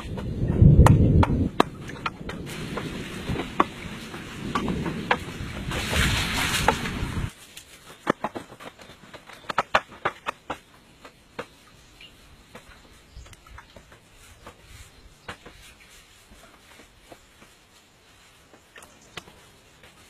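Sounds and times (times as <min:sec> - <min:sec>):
outdoor noise rushing: 0:00.0 - 0:07.4
bamboo poles clicking and tapping: 0:00.0 - 0:17.8, 0:18.4 - 0:20.0.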